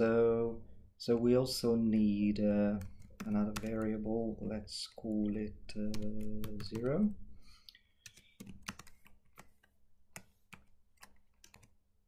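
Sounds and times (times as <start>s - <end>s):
typing on computer keyboard: 2.7s - 4.2s, 5.1s - 7.1s, 8.0s - 11.8s.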